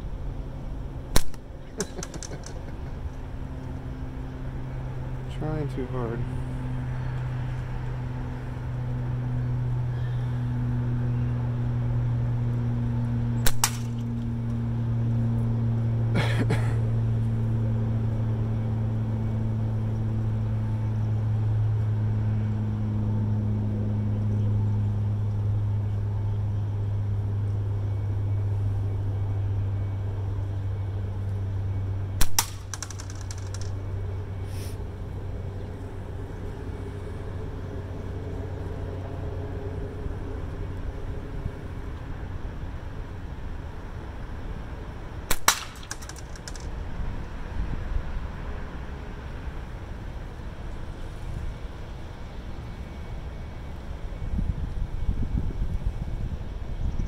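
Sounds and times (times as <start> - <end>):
low engine-like hum: 0.0 - 57.0
shots striking can target: 1.2 - 2.6, 13.5 - 14.0, 32.2 - 33.7, 45.3 - 46.7.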